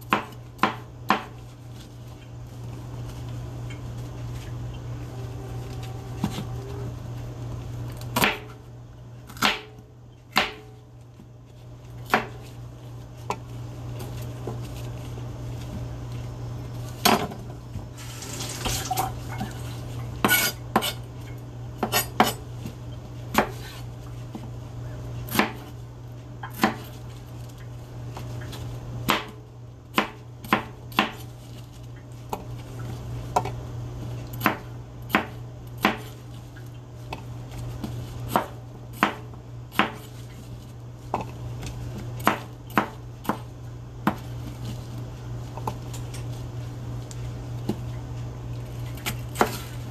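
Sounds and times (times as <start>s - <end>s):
knife chopping on plastic board: 0.1s - 1.4s, 9.3s - 10.7s, 23.3s - 23.8s, 25.3s - 25.7s, 26.4s - 26.9s, 29.1s - 31.2s, 34.3s - 36.2s, 37.8s - 40.1s, 41.1s - 44.3s.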